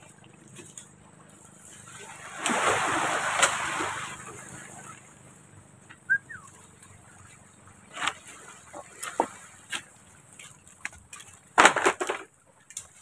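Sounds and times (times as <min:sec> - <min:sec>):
clatter: 0:10.8 - 0:12.9.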